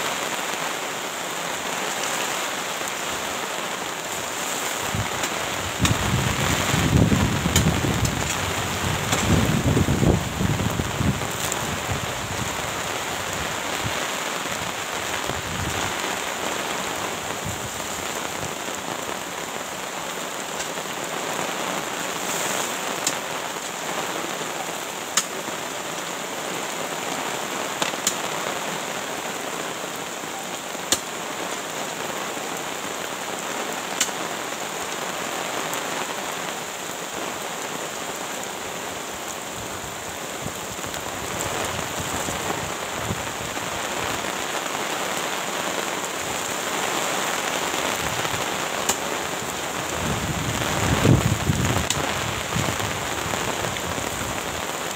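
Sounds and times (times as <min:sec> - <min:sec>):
steady rain falling: 0:00.0 - 0:54.9.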